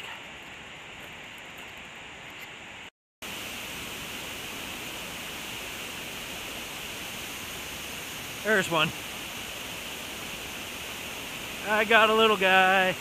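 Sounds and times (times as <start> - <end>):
waterfall rushing: 3.2 - 13.0.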